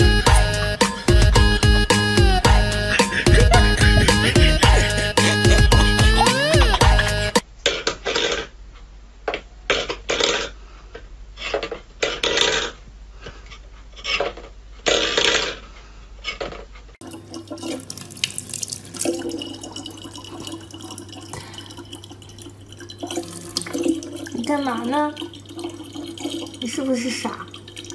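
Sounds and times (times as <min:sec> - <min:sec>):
tap water running into bottle: 0:17.0 - 0:27.9.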